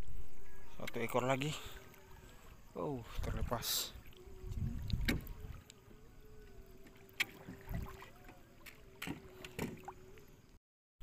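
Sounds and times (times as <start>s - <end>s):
faint steady hum: 0.0s - 10.6s
splashes in shallow water: 6.8s - 10.5s.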